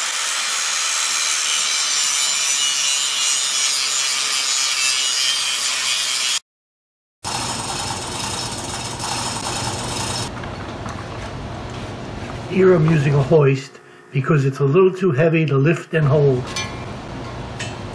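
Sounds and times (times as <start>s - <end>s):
angle grinder grinding metal: 0.0s - 6.4s, 7.3s - 10.3s
low shop noise: 7.2s - 14.9s.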